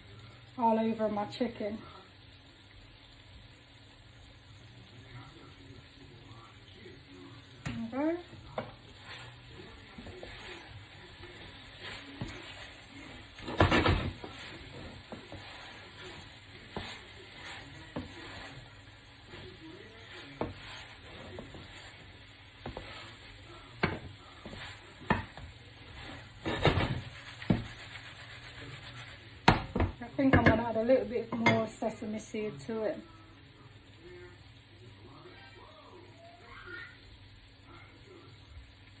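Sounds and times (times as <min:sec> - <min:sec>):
spatula stirring food in pan: 0:00.0 - 0:39.0
clattering in pan: 0:11.8 - 0:18.5, 0:23.8 - 0:28.0, 0:28.8 - 0:31.9.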